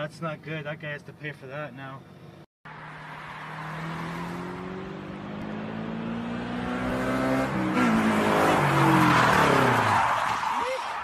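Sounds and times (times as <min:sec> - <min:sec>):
car engine accelerating: 0:02.7 - 0:10.2.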